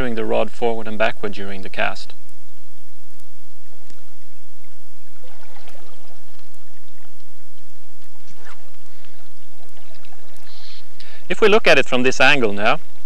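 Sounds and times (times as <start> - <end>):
steady hiss: 0.0 - 13.0
river water flowing and lapping: 3.8 - 11.3.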